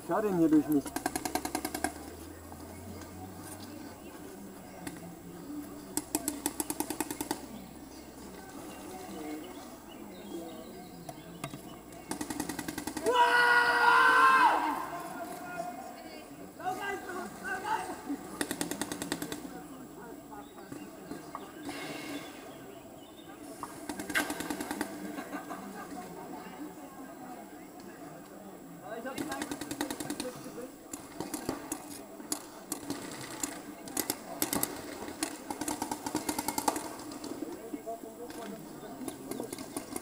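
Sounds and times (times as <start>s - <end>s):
distant voices talking: 0.0s - 40.0s
paintball marker rapid firing: 0.6s - 2.1s, 6.0s - 7.5s, 12.0s - 13.1s, 18.3s - 19.5s, 23.9s - 25.1s, 29.1s - 37.4s.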